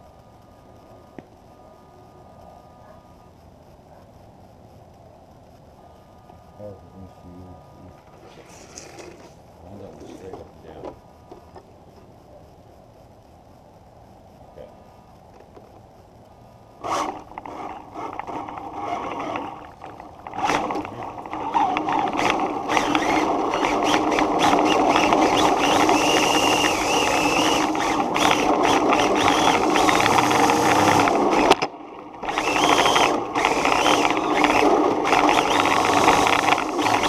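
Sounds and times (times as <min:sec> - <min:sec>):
tyre and wind noise: 0:15.0 - 0:37.0
electric motor whine: 0:16.8 - 0:37.0.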